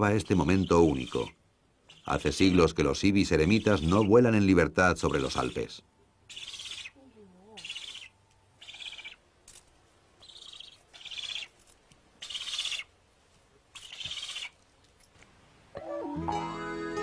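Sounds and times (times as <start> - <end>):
ibises calling hoarsely: 0.0 - 14.6.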